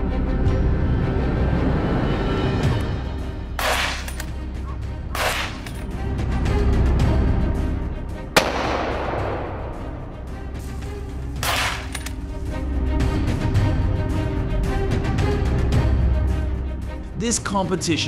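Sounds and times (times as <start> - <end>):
background music: 0.0 - 18.0
gunshots: 3.6 - 4.1, 5.1 - 5.7, 8.4 - 10.1, 11.4 - 12.0.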